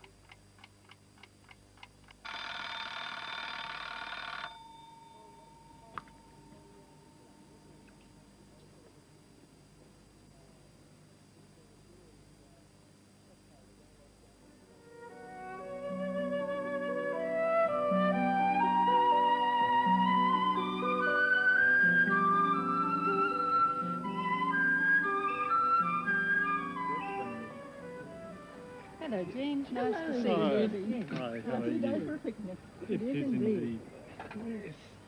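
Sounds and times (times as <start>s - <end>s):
tape hiss: 0.0s - 35.0s
alarm clock ticking: 2.2s - 5.3s
alarm clock bell ringing: 2.2s - 7.0s
faint lingering tone: 4.6s - 8.6s
instrumental music held notes: 14.6s - 30.4s.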